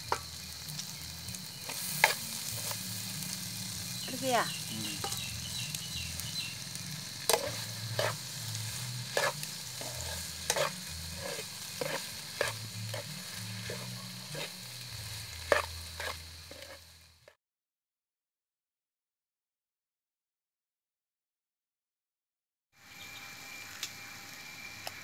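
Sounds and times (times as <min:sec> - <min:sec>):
food sizzling in frying pan: 0:00.0 - 0:17.4, 0:22.8 - 0:25.0
spatula scraping and knocking pan: 0:01.6 - 0:02.8, 0:05.0 - 0:05.5, 0:07.2 - 0:16.9.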